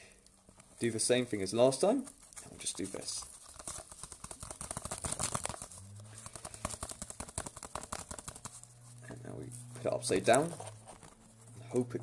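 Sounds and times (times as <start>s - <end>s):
flock pattering against plastic tub: 2.9s - 8.7s
low steady hum: 5.6s - 12.0s.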